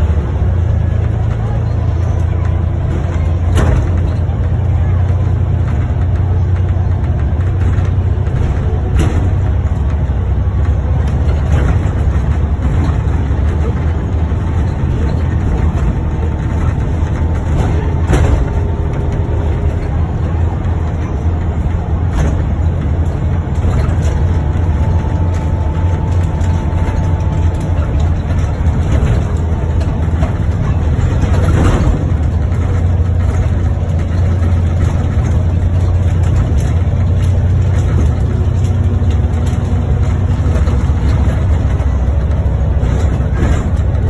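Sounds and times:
bodywork clicks and knocks: 0.0s - 44.0s
bus engine rumbling: 0.0s - 44.0s.

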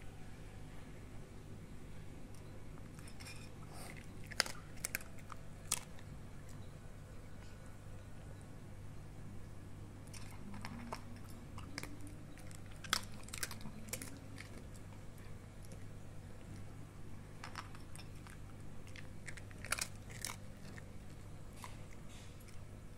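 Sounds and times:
steady low hum: 0.0s - 22.9s
dog crunching dry kibble: 2.8s - 6.6s, 10.0s - 16.7s, 17.3s - 22.7s.

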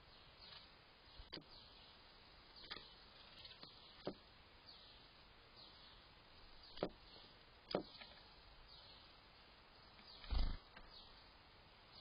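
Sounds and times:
distant birds calling: 0.0s - 12.0s.

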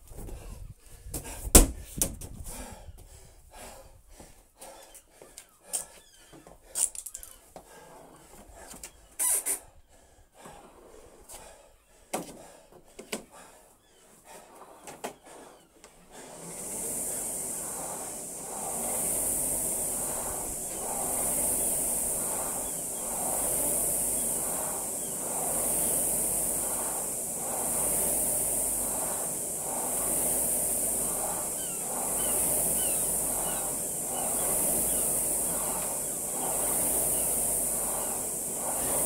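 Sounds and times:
rowing machine flywheel whoosh: 14.1s - 39.0s.

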